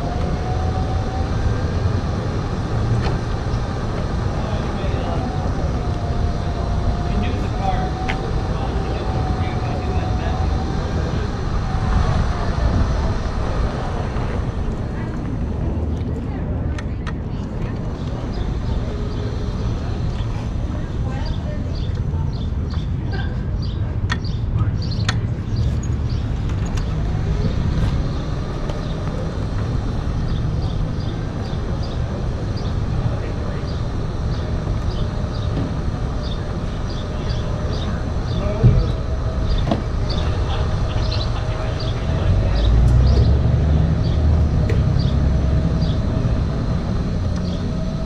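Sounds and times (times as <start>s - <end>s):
steady low rumble: 0.0s - 48.0s
small birds chirping: 17.3s - 48.0s.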